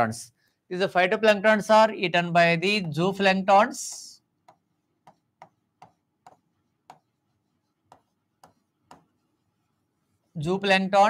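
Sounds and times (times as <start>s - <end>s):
stylus tapping on display board: 3.9s - 7.1s, 7.8s - 9.2s.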